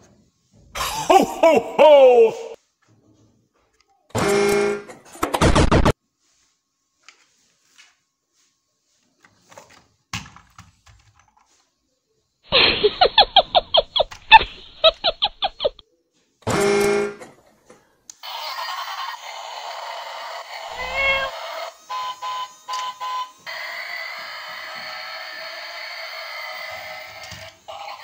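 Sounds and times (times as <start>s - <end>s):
toy train motor running: 18.1s - 28.0s
toy horn toot: 20.7s - 23.3s.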